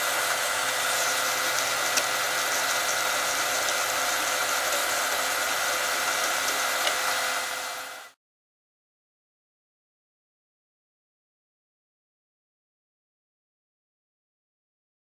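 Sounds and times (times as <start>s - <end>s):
vinyl cutter whirring: 0.0s - 8.2s.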